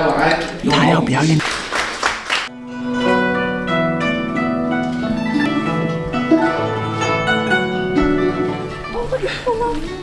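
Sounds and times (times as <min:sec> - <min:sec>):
zither plucked melody: 0:02.5 - 0:10.0.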